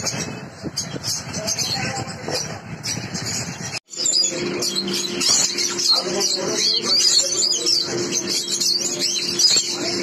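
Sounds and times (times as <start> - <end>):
cage birds chirping: 0.0 - 10.0.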